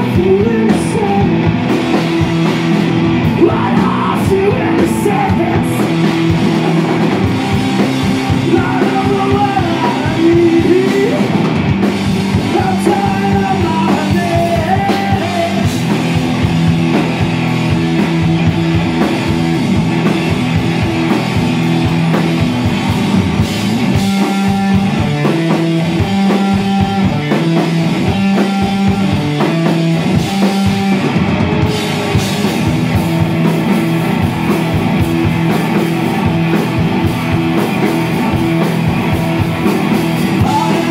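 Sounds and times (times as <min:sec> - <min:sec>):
person singing: 0:00.0 - 0:01.5, 0:03.2 - 0:06.0, 0:08.3 - 0:11.4, 0:12.4 - 0:15.7, 0:40.3 - 0:40.9
drum kit: 0:00.0 - 0:40.9
electric guitar: 0:00.0 - 0:40.9.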